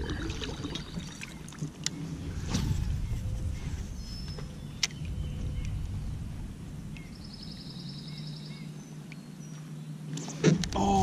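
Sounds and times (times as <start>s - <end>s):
low rumble: 0.0s - 9.1s
steady low hum: 0.0s - 11.0s
bird chirps: 2.8s - 6.3s, 6.9s - 10.4s.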